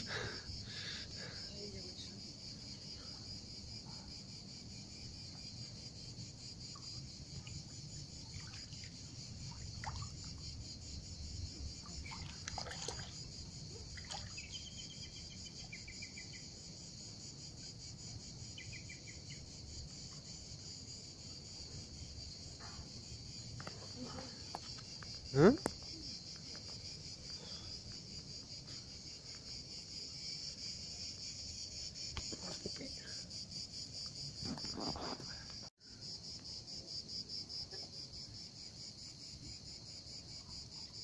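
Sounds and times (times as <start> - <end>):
insects chirring: 0.0 - 41.0
water sloshing in a pool: 6.7 - 14.9.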